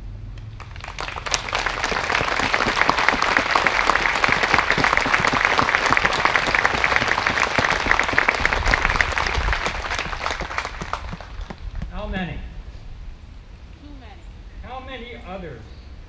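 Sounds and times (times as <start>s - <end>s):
crowd applauding: 0.5s - 11.9s.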